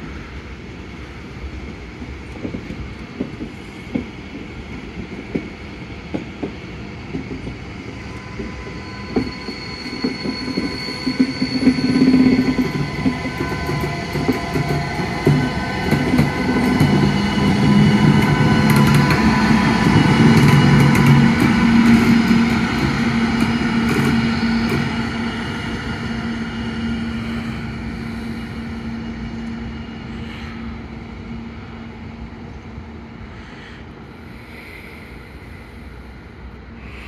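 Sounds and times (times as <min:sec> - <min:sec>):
electric locomotive hum and whine: 0:00.0 - 0:37.0
wheel-on-rail noise: 0:06.4 - 0:29.6.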